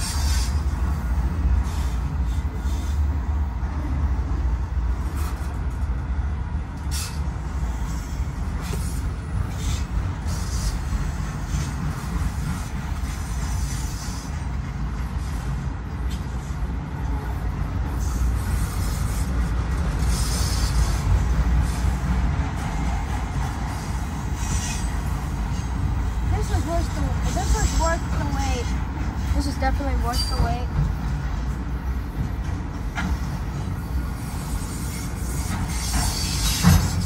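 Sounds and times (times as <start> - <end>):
train wheels rumbling on rail: 0.0 - 37.0
high-pitched wheel squeals: 24.4 - 25.7, 34.4 - 37.0.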